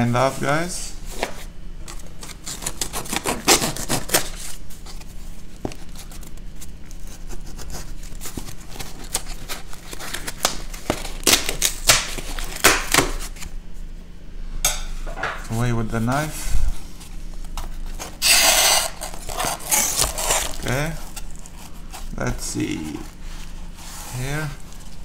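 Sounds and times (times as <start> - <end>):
knife cutting packing tape: 1.9 - 4.6, 5.7 - 13.5, 18.0 - 22.0.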